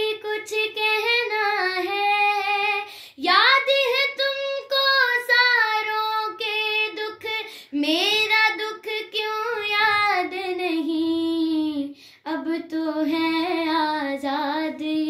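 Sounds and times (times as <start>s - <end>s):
girl singing: 0.0s - 15.0s.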